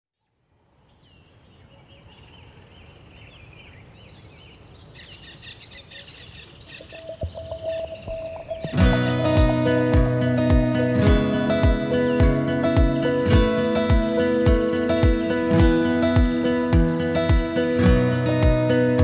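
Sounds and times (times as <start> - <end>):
birds chirping and singing: 0.9 - 16.6
held tone: 7.0 - 11.3
acoustic guitar music: 7.0 - 19.0.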